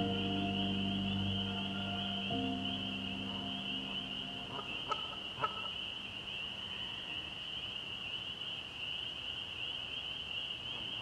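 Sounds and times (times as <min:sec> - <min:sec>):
high wavering trill chorus: 0:00.0 - 0:06.3.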